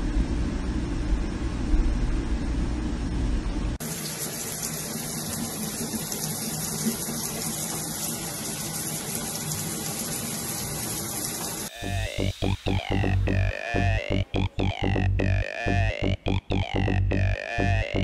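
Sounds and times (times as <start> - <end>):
tap water running into bathtub: 3.8 - 17.3.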